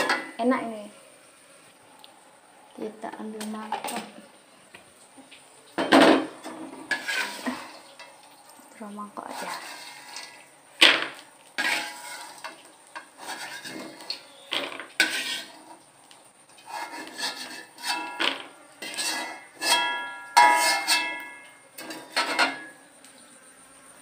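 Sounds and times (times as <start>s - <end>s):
metal spatula scraping wok: 6.0s - 8.2s, 9.2s - 15.8s, 16.6s - 22.8s
wok ringing: 18.9s - 21.5s.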